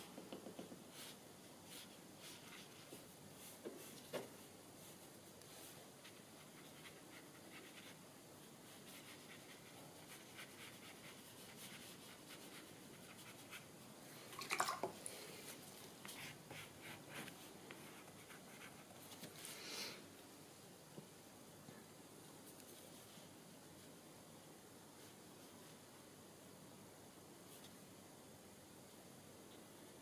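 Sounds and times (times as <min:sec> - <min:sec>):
soft hiss: 0:00.0 - 0:30.0
paintbrush dabbing on paper: 0:00.1 - 0:08.0, 0:08.6 - 0:13.7.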